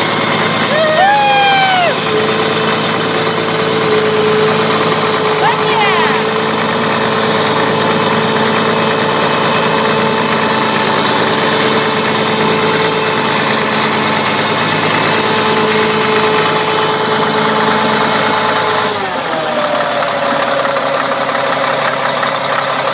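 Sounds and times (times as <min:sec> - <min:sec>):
diesel engine idling with clatter: 0:00.0 - 0:22.9.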